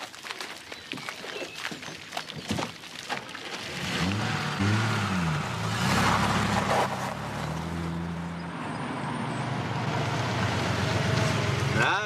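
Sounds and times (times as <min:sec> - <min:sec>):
car engine driving: 0:03.4 - 0:12.0.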